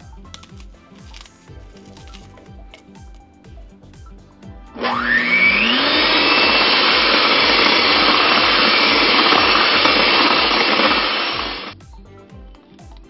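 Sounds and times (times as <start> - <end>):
electric hand mixer whirring: 4.7 - 11.8.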